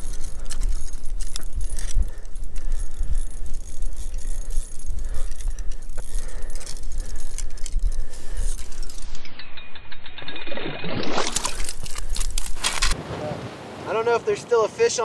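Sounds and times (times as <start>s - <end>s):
fishing reel clicking and rattling: 0.0s - 13.0s.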